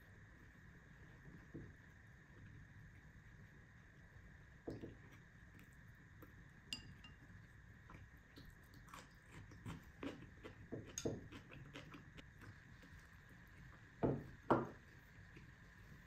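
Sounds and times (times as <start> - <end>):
soft chewing: 4.7 - 14.0, 14.8 - 16.0.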